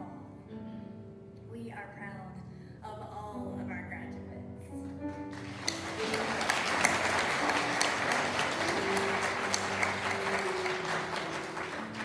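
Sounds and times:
crowd applauding: 0:05.1 - 0:12.0.

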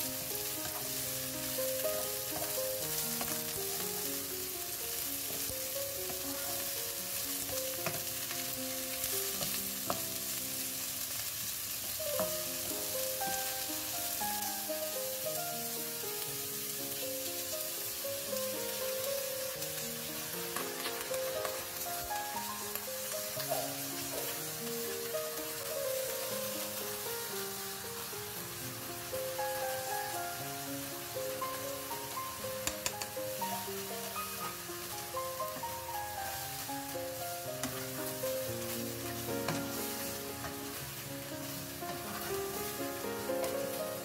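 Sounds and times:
soft background music: 0:00.0 - 0:44.0
vegetables sizzling in a wok: 0:00.0 - 0:44.0
spatula clicking against pan: 0:32.6 - 0:33.2.

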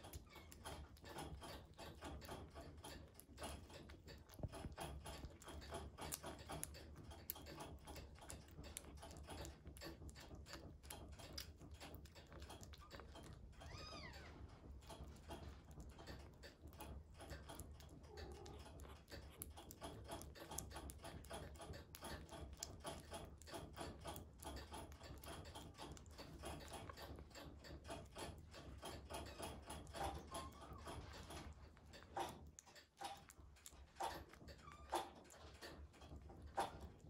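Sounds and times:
kitten chewing and smacking: 0:00.0 - 0:37.0.

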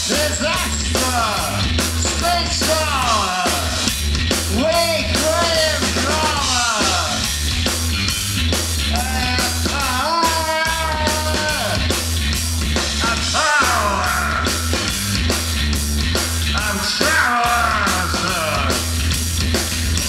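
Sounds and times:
man singing into a microphone: 0:00.0 - 0:03.8, 0:04.5 - 0:07.2, 0:08.9 - 0:11.8, 0:13.0 - 0:14.7, 0:16.6 - 0:18.9
bass guitar: 0:00.0 - 0:20.0
drum kit: 0:00.0 - 0:20.0
electric guitar: 0:00.0 - 0:20.0.

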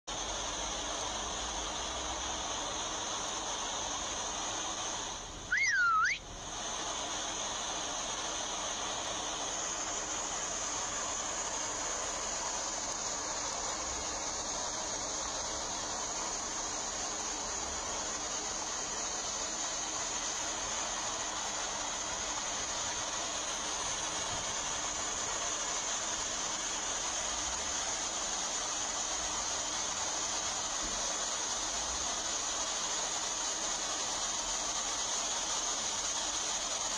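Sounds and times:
river water pouring over a weir: 0:00.1 - 0:36.9
whistle-like sound: 0:05.5 - 0:06.2.

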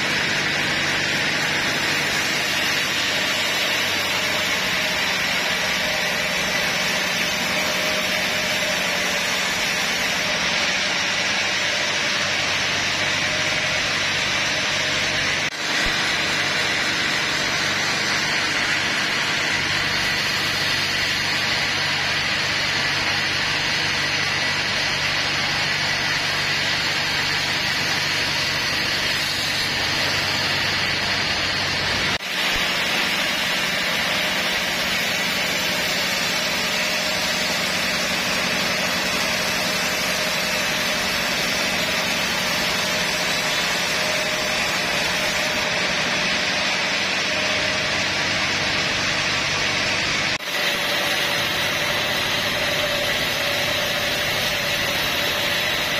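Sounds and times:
band saw cutting log: 0:00.0 - 0:55.9.

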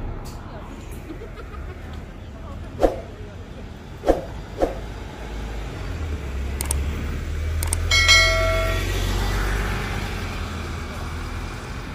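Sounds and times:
bus diesel engine pulling away: 0:00.0 - 0:11.9
brief ringing tone: 0:07.9 - 0:09.0.

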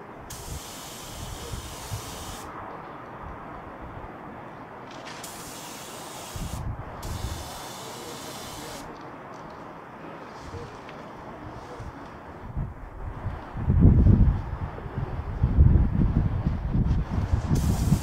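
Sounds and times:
spray gun hissing: 0:00.3 - 0:02.5, 0:05.2 - 0:08.9, 0:17.6 - 0:18.0.

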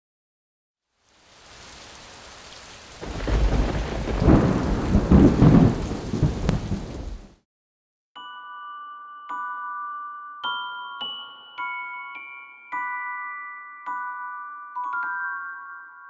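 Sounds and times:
rain hissing: 0:00.8 - 0:07.4
rolling thunder: 0:03.0 - 0:07.4
bell-like chimes: 0:08.2 - 0:16.0.

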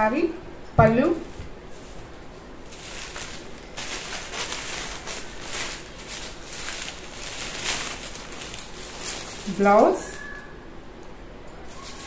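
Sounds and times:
cloth rustling: 0:01.2 - 0:10.5.

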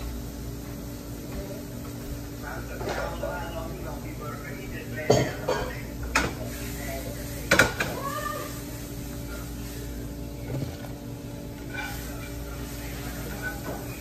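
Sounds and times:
metal cookware clatter: 0:11.6 - 0:12.4.

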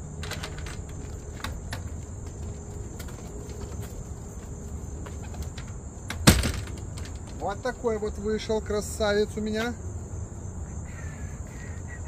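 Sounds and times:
high-pitched insect chorus: 0:00.0 - 0:12.0
light clicks and knocks on wood: 0:00.2 - 0:07.9.

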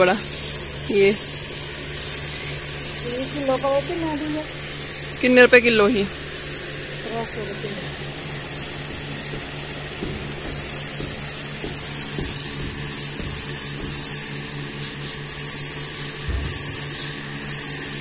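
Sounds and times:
electric fan humming: 0:00.0 - 0:18.0
soft thump: 0:16.3 - 0:16.8.

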